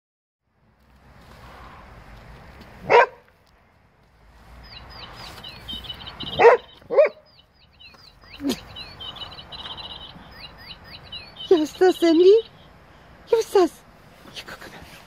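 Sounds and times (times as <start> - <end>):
dog barking: 2.8 - 3.2, 6.3 - 7.3
electronic birdsong chirps and trills: 4.6 - 13.7.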